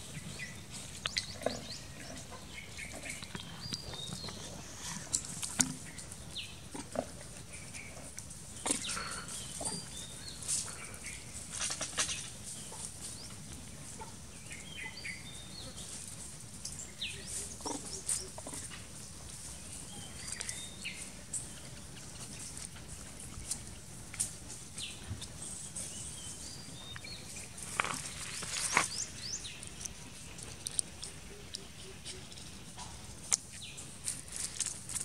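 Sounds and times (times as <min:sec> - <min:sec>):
small clicks and scuffs: 0:10.4 - 0:13.6, 0:26.9 - 0:32.6, 0:33.2 - 0:35.0.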